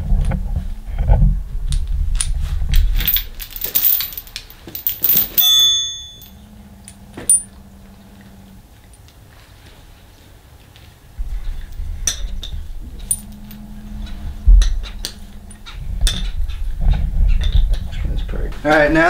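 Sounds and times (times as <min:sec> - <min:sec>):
chain rattling on concrete: 0:02.2 - 0:07.6, 0:11.5 - 0:16.6
short metallic ring: 0:03.0 - 0:07.6, 0:13.0 - 0:16.4
low rumble: 0:11.2 - 0:18.5.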